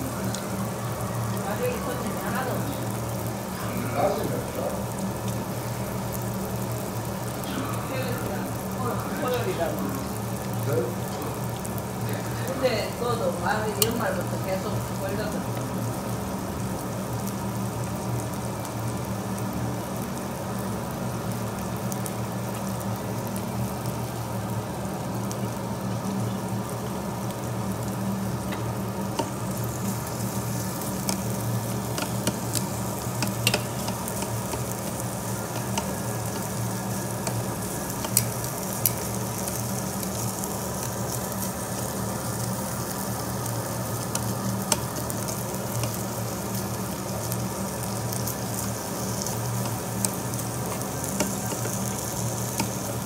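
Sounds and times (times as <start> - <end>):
meat sizzling on a grill: 0.0 - 53.0
metal tongs clicking on grill: 13.8 - 14.0, 28.5 - 29.4, 30.1 - 40.3, 44.0 - 46.0, 49.2 - 52.9.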